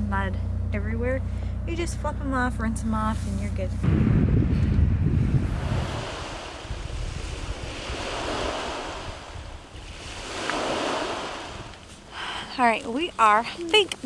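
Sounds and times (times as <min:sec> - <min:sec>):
wind rumble on microphone: 0:02.8 - 0:12.0
small waves washing on sand: 0:05.4 - 0:12.1.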